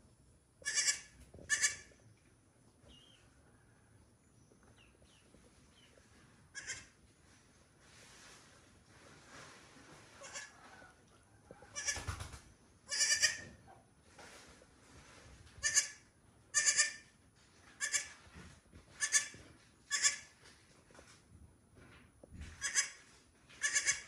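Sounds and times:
goat kid bleating: 0.6s - 1.9s, 6.5s - 7.0s, 10.2s - 10.6s, 11.6s - 12.0s, 12.9s - 13.6s, 15.6s - 17.1s, 17.8s - 18.2s, 19.0s - 20.4s, 22.6s - 23.0s, 23.6s - 24.0s.

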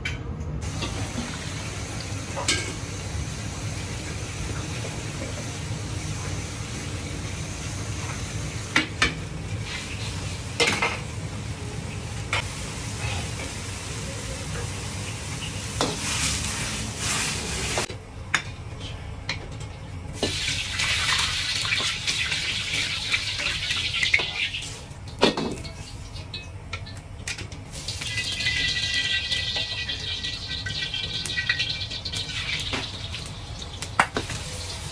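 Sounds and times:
loud sizzling hisses: 34.3s - 34.9s.

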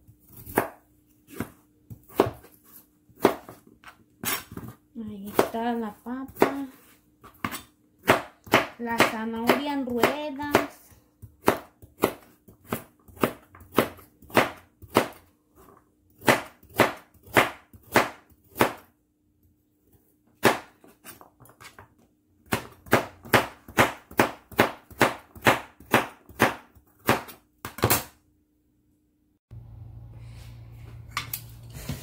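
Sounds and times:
knife slicing carrot on board: 0.3s - 5.5s.

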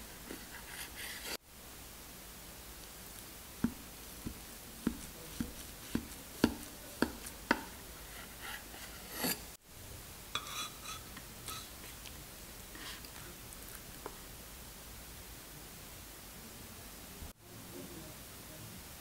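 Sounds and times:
knife knocking on wooden board: 3.6s - 7.7s.

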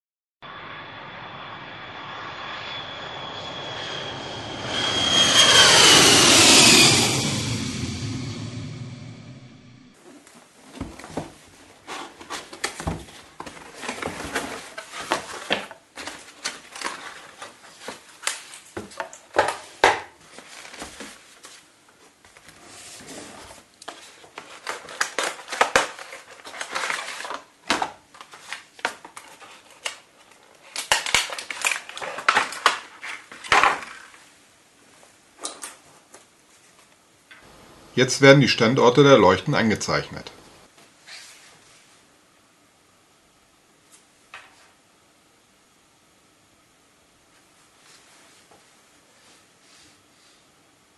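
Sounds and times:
cardboard and plastic rustling: 10.0s - 34.1s.

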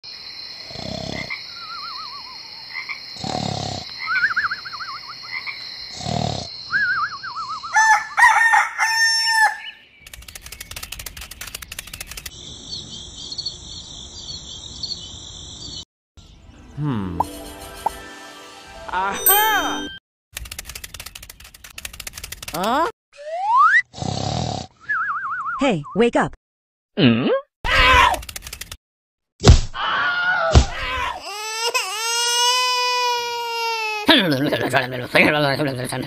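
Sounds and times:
frog croaks: 0.6s - 6.6s
birds chirping: 1.3s - 2.8s, 3.9s - 5.9s, 9.4s - 17.4s
rooster crowing: 7.7s - 9.8s
rapid clicking: 10.0s - 12.3s, 20.4s - 22.7s, 28.2s - 28.8s.

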